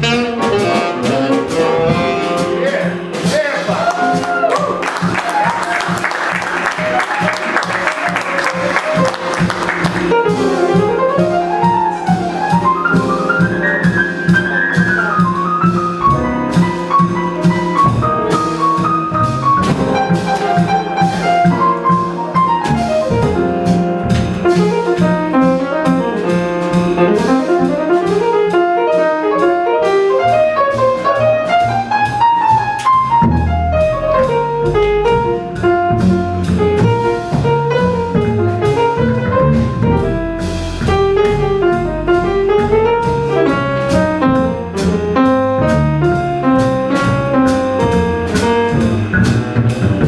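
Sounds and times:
jazz trio playing: 0:00.0 - 0:50.0
audience applause: 0:03.7 - 0:10.2.

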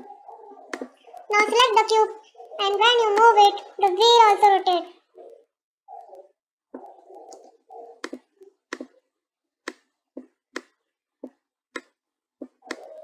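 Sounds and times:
computer mouse clicks: 0:06.8 - 0:09.0, 0:10.5 - 0:13.0.

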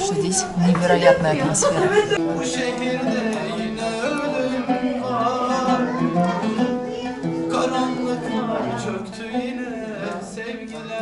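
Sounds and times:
oud plucked strings: 0:02.1 - 0:11.0
man singing: 0:02.2 - 0:11.0.

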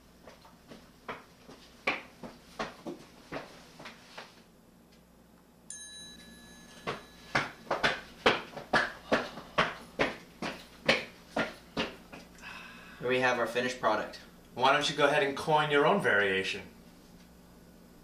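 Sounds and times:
footsteps walking: 0:00.2 - 0:04.5, 0:06.7 - 0:12.4
steady high tone: 0:05.7 - 0:08.4.

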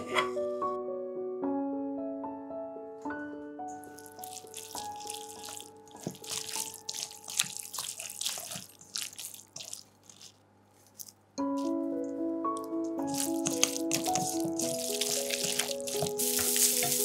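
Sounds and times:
soft piano music: 0:00.0 - 0:09.7, 0:11.4 - 0:17.0
noodles stirred in wet sauce: 0:03.8 - 0:11.8, 0:13.0 - 0:17.0.

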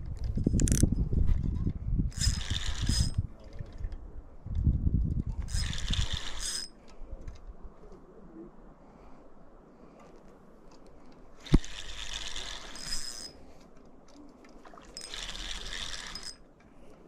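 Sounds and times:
fishing reel whirring and clicking: 0:00.5 - 0:00.9, 0:02.1 - 0:03.2, 0:05.4 - 0:06.8, 0:11.4 - 0:13.4, 0:14.8 - 0:16.5.

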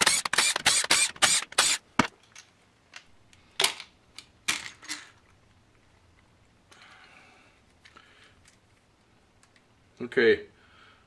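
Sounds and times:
cordless driver bursts: 0:00.0 - 0:01.8.

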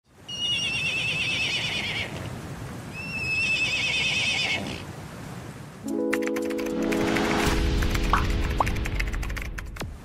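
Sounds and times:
horse whinnying: 0:00.3 - 0:02.2, 0:03.0 - 0:04.8.

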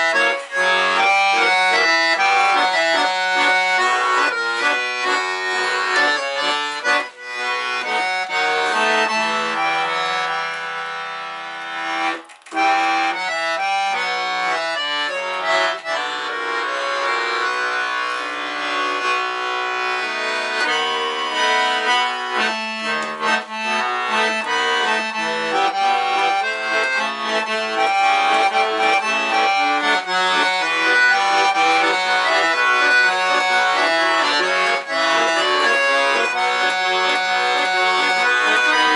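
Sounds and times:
button accordion playing: 0:00.0 - 0:38.9.

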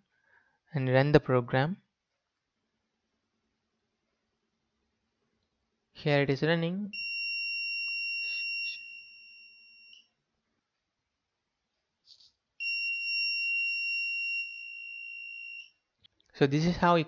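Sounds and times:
alarm buzzer beeps: 0:06.9 - 0:10.1, 0:12.6 - 0:15.8.

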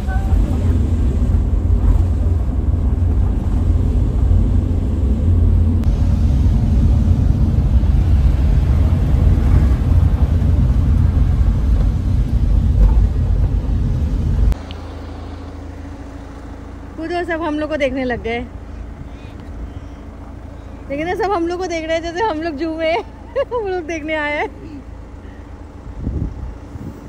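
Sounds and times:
minibus engine rumble: 0:00.0 - 0:27.0.

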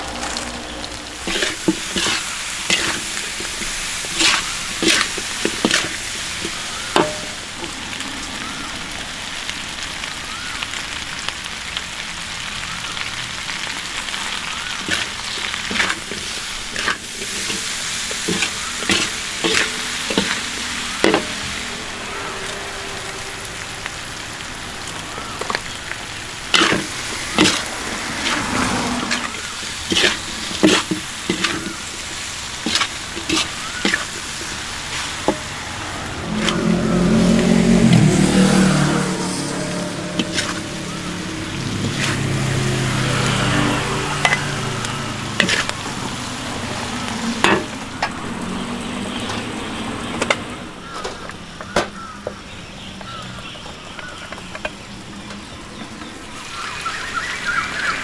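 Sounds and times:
food sizzling in hot oil: 0:00.0 - 0:58.0
utensil knocking and scraping pan: 0:01.2 - 0:07.4, 0:14.9 - 0:21.4, 0:29.9 - 0:31.8, 0:45.4 - 0:45.7.

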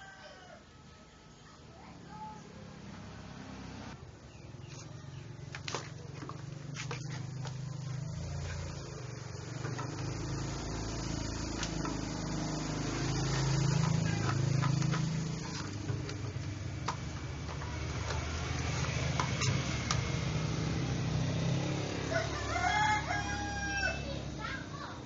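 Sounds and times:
low motor hum: 0:02.6 - 0:22.4.

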